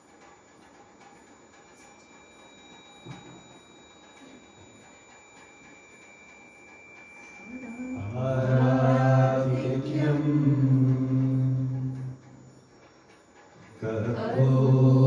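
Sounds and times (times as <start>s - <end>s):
man chanting om: 8.0s - 12.2s, 13.8s - 15.0s.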